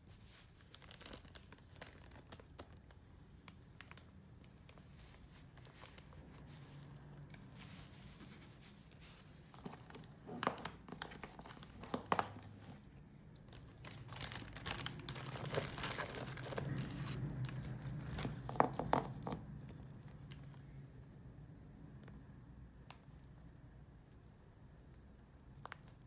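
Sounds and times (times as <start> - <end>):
packaging crinkling: 0.3 - 19.3.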